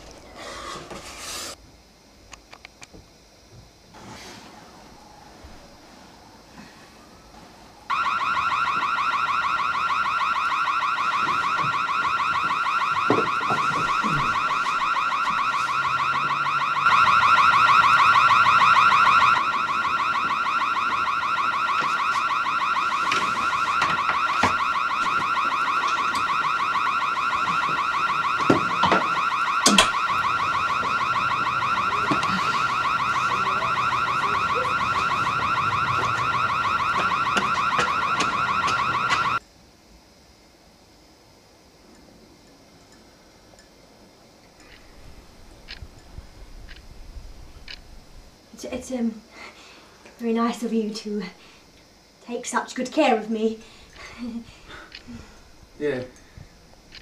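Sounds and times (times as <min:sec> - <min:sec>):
car alarm warbling: 0:07.0 - 0:39.4.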